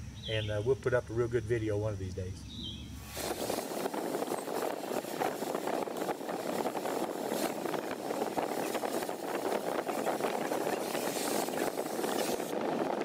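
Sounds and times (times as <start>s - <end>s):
cutting torch flame hissing: 3.0s - 13.0s
hot metal crackling: 3.0s - 13.0s.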